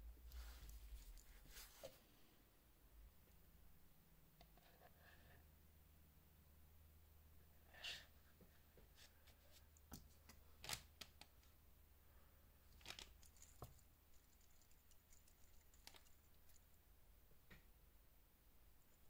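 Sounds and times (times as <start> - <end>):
hand rustling on desk: 0.3 - 2.0.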